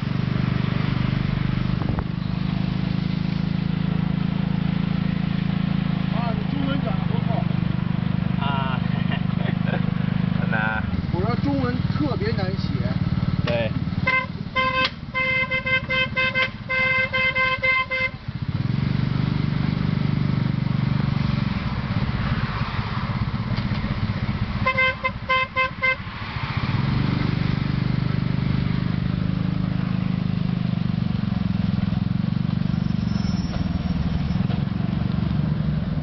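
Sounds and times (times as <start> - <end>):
motor tricycle engine running: 0.0 - 22.0, 27.8 - 36.0
high-pitched horn toots: 14.0 - 18.2, 24.6 - 26.0.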